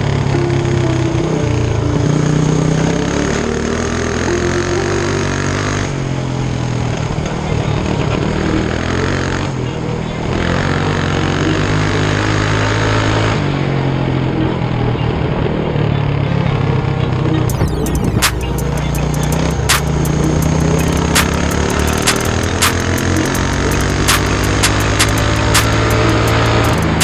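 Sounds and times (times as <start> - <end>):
small engine running: 17.5 - 27.0.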